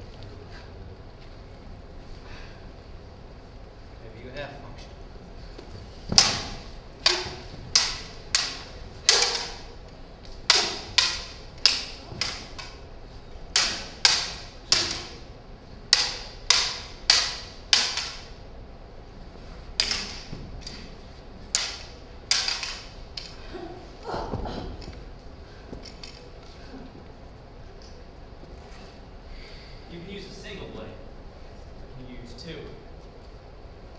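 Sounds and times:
toy lightsabers clacking: 6.2s - 12.9s, 13.5s - 15.2s, 15.9s - 18.4s, 19.8s - 20.9s, 21.5s - 23.4s.

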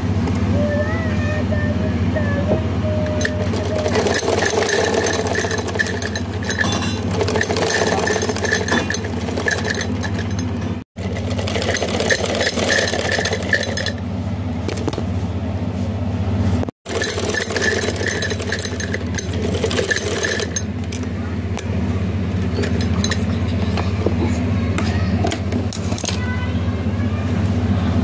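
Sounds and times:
sewing machine stitching: 3.2s - 14.0s, 16.9s - 20.7s.

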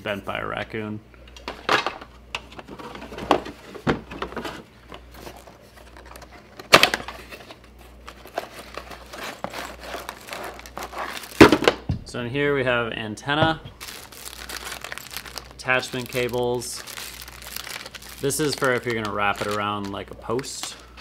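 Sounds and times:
cardboard and plastic bags rustling: 2.5s - 11.9s, 13.4s - 21.0s.

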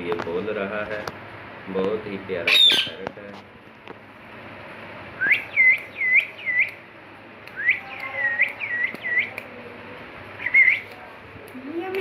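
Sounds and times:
parakeet whistling: 2.4s - 3.0s, 5.2s - 6.8s, 7.6s - 9.4s, 10.4s - 10.9s.

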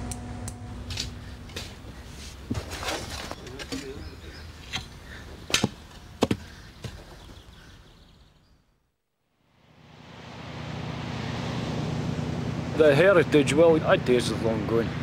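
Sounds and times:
boat engine drone: 0.0s - 2.5s, 9.5s - 15.0s.

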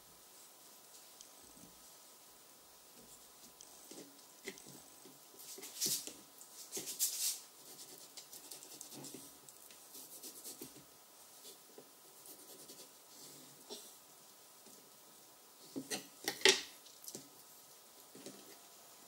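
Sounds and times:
hands rustling on a baking tray: 3.0s - 14.9s.

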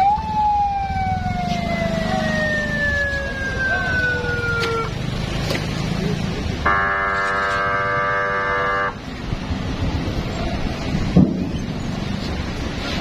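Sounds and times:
low rumble of engines: 0.0s - 13.0s
vehicle horn blast: 6.6s - 9.0s.

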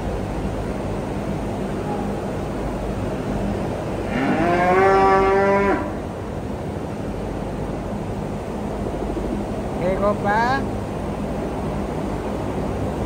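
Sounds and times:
steady background hum: 0.0s - 13.0s
cow mooing: 4.0s - 6.0s.

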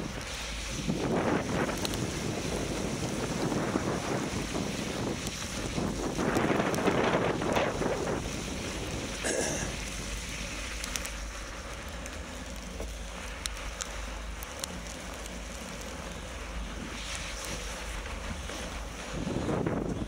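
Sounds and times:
wind rushing over microphone: 0.0s - 20.0s
sharp ticks: 11.8s - 15.9s.

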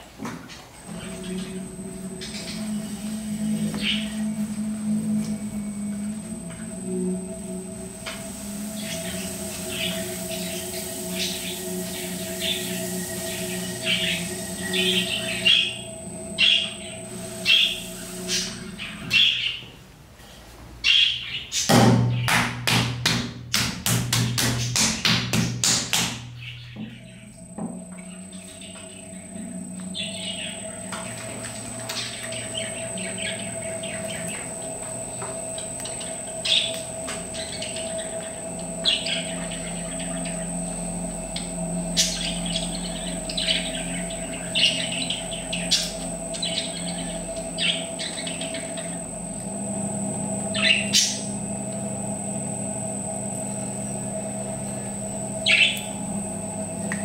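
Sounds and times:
pottery wheel motor whine: 0.0s - 20.0s, 20.8s - 57.0s
small birds chirping: 26.4s - 51.5s, 53.6s - 57.0s.

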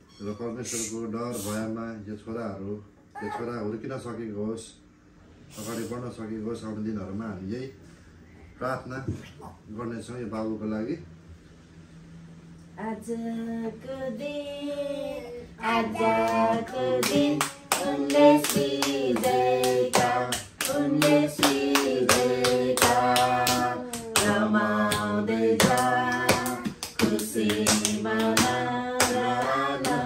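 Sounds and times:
people singing: 12.8s - 30.0s
hand-clapping in steady beat: 16.0s - 30.0s.

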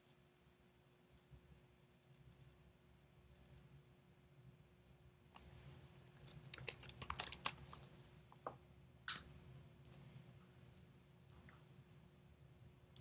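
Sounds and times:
typing on computer keyboard: 6.2s - 7.6s.

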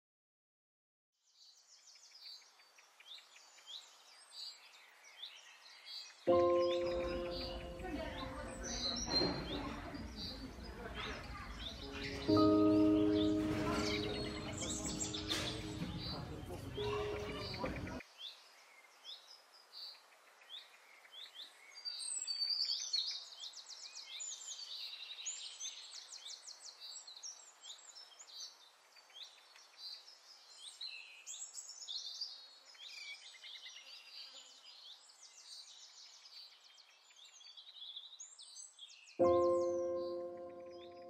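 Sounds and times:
small birds chirping: 1.2s - 41.0s.

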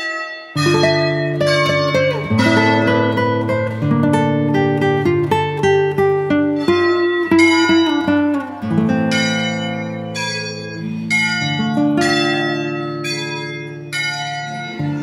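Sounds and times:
ringing bell-like tones: 6.6s - 15.0s.

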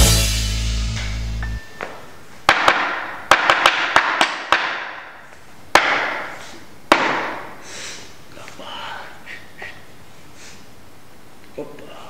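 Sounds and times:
hammer striking wooden chair: 2.5s - 5.1s, 5.7s - 6.3s, 6.9s - 7.5s.

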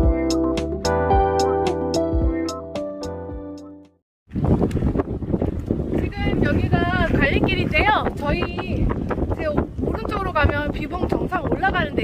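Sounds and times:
instrumental chords over light beat: 0.0s - 4.0s.

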